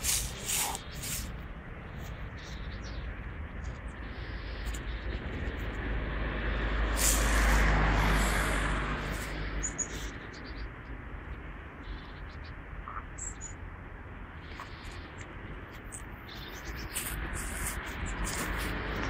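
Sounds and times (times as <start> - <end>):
vehicle passing by: 5.1 - 10.8, 16.9 - 19.0.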